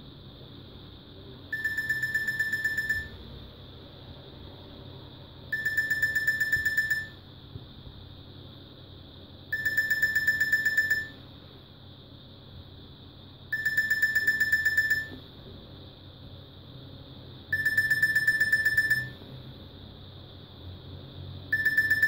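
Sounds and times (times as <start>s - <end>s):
phone alarm high beeps: 1.6s - 3.2s, 5.5s - 7.2s, 9.5s - 11.2s, 13.5s - 15.2s, 17.5s - 19.2s, 21.5s - 22.0s.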